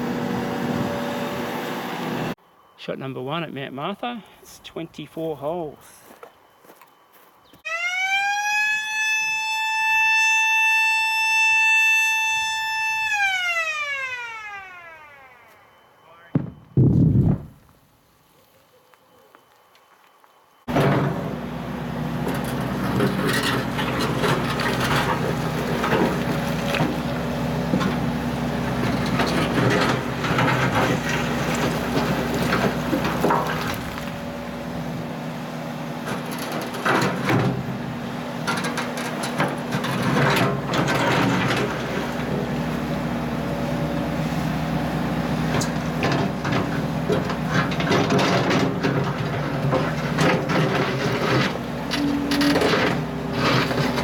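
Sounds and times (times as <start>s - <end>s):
excavator diesel engine running: 0.0s - 2.4s, 20.7s - 54.0s
rocks clunking against steel bucket: 28.7s - 34.2s.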